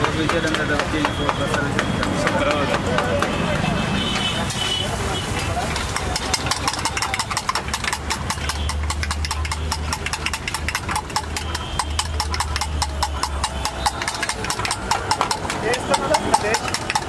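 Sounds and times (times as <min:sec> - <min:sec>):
whisk clicking against steel bowl: 0:05.7 - 0:17.0.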